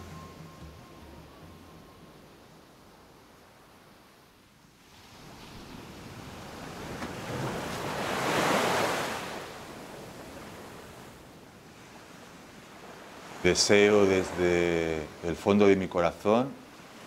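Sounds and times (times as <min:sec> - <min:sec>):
waves breaking on pebbly beach: 0:04.8 - 0:10.8.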